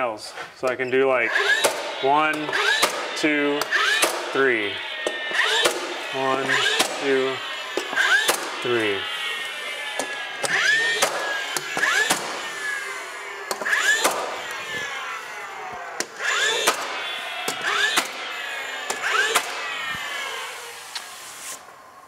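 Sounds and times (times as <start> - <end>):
nailer motor whine: 0.9 - 22.0
nail gun firing snap: 1.3 - 4.4, 5.0 - 7.2, 7.8 - 8.7, 10.0 - 12.8, 13.5 - 14.6, 16.0 - 18.2, 18.9 - 19.6.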